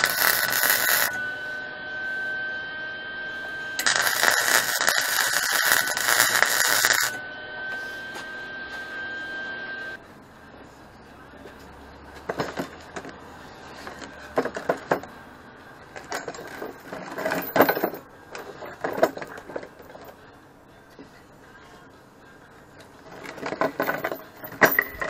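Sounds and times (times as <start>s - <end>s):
steady high whine: 0.0s - 12.1s
chain links clinking: 16.2s - 20.2s, 23.1s - 25.0s.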